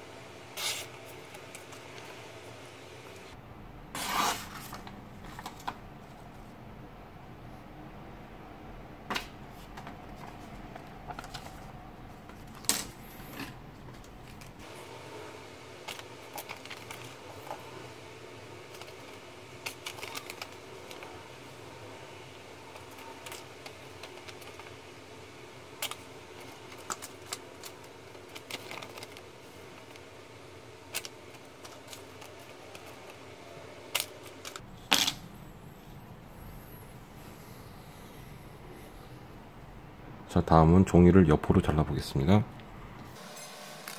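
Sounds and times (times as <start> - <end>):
blade cutting paper: 0.6 - 1.5.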